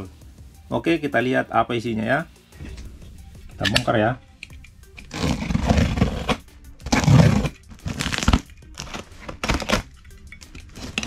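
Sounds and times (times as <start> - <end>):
box cutter slicing tape: 5.0 - 9.9, 10.7 - 11.0
plastic crinkling: 5.0 - 11.0.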